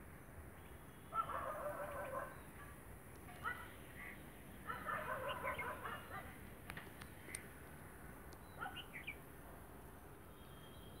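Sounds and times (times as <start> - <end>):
birds chirping: 0.0 - 11.0
faint clicks: 6.6 - 8.4.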